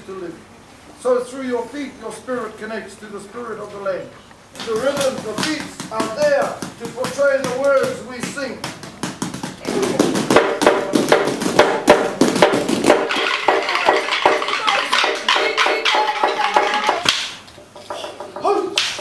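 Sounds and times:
percussive taps of balls and sticks: 0:04.6 - 0:19.0.

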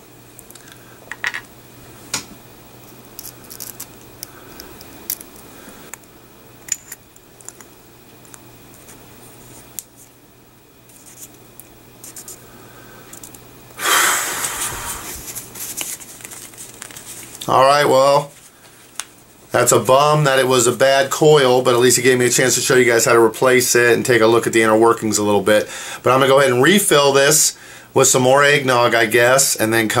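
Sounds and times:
small metal parts clicking: 0:03.2 - 0:05.3
handling rustle: 0:15.2 - 0:17.4.

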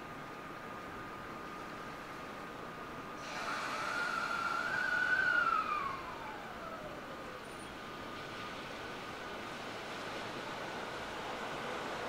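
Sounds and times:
hiss: 0:03.2 - 0:06.8
electric train motors whining: 0:03.2 - 0:07.5.

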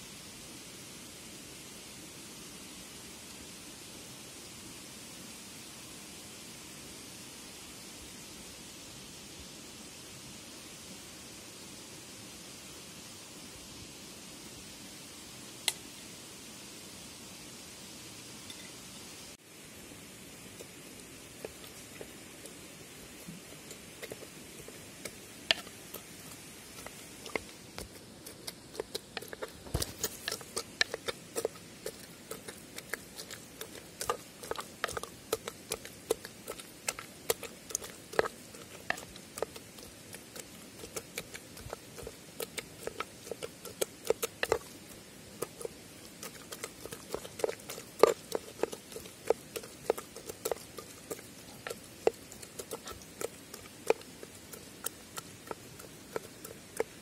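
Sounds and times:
food squelching: 0:20.4 - 0:57.0
metal pestle tapping in stone pot: 0:26.8 - 0:44.7, 0:45.4 - 0:57.0.

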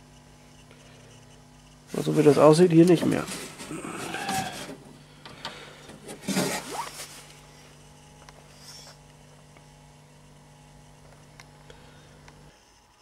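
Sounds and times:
scraping rub: 0:00.4 - 0:04.8, 0:06.0 - 0:07.4.

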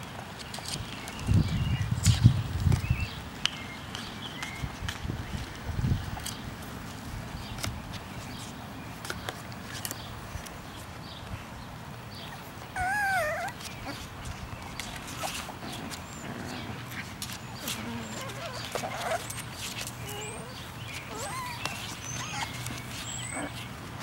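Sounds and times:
puppy whimpering: 0:12.2 - 0:14.1, 0:17.7 - 0:23.7
scratching and rustling in basket: 0:12.2 - 0:24.0.

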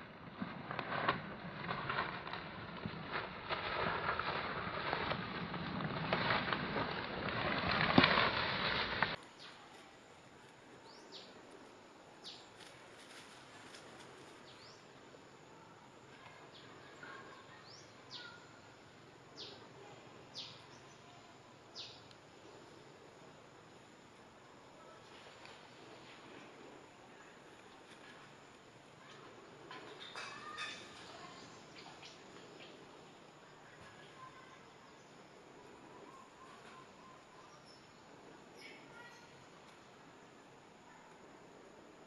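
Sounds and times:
forest ambience: 0:00.0 - 0:42.0
footsteps on dry leaves: 0:01.8 - 0:09.2.

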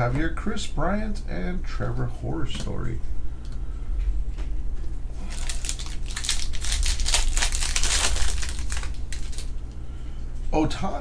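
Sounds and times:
card pack wrapper tearing: 0:05.2 - 0:09.5.

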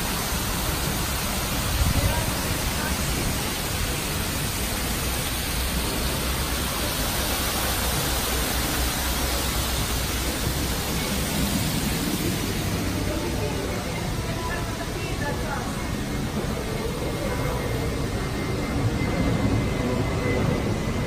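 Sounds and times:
wind buffeting microphone: 0:00.0 - 0:06.4
water splashing from fountains: 0:00.0 - 0:19.0.

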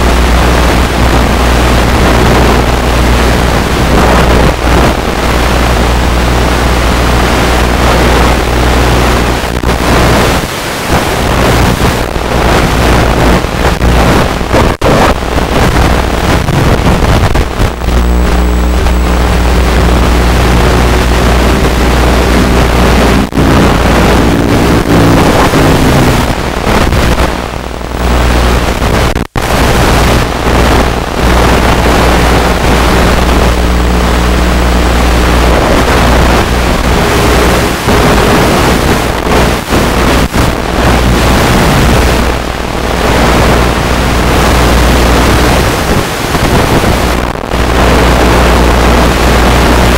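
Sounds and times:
wind rush on microphone: 0:00.0 - 0:49.9
electric motor and propeller buzz: 0:17.8 - 0:27.2.

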